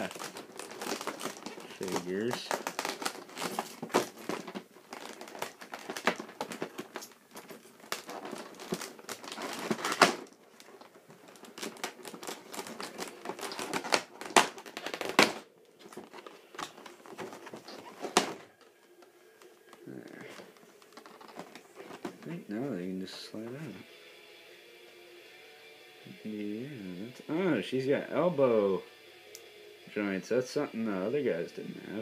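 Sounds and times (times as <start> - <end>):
plastic packaging crinkling: 0.0 - 23.8.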